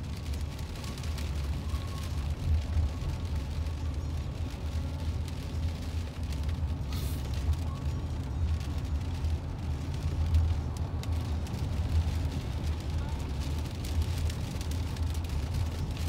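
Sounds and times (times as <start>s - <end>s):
car cabin road and wind rumble: 0.0s - 16.0s
brief hiss: 6.9s - 7.3s.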